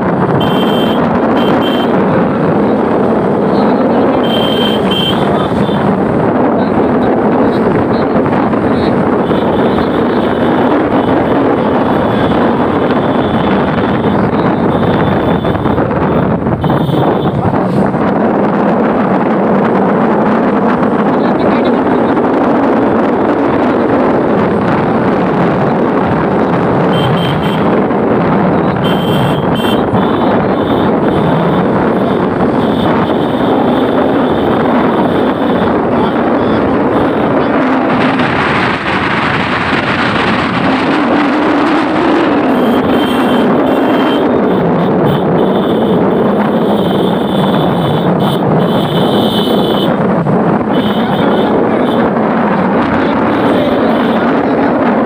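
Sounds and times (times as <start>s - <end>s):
motorcycle engine running: 0.0s - 55.0s
wind rushing over microphone: 0.0s - 55.0s.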